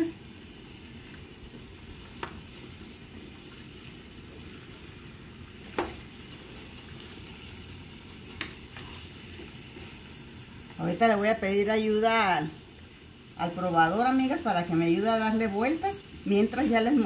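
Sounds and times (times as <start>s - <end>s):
pork frying with low hiss: 0.0s - 17.0s
wooden spoon knocking pan: 5.7s - 6.0s.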